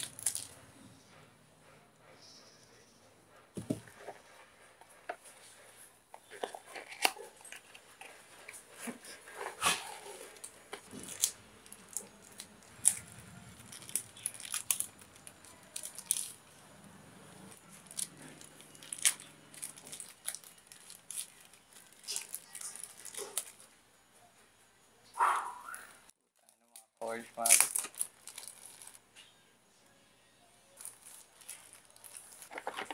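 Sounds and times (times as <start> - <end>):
packaging crinkling and rustling: 0.0 - 0.6, 6.2 - 16.6, 17.4 - 23.7, 26.4 - 29.1, 30.8 - 32.9.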